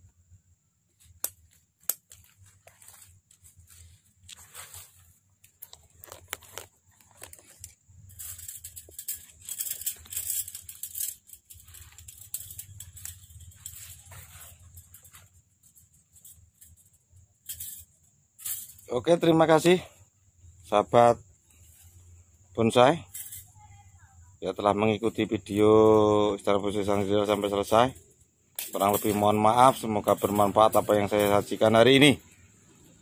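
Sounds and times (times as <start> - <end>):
wire and pliers clicking: 1.1 - 3.4, 5.4 - 17.9, 27.2 - 31.7
leaves rustling: 1.4 - 16.9.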